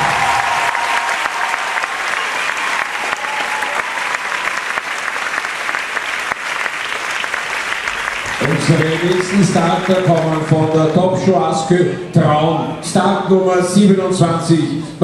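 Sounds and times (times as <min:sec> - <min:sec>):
audience clapping: 0:00.0 - 0:11.3.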